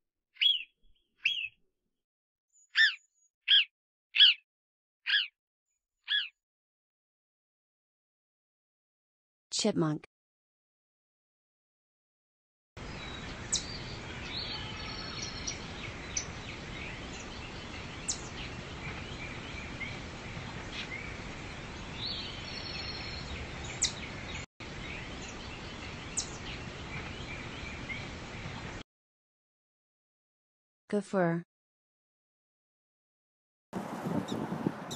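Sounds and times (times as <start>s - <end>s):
small birds chirping: 0.4s - 1.6s, 2.6s - 4.4s, 5.1s - 5.3s, 6.0s - 6.4s, 12.8s - 28.8s, 33.8s - 34.9s.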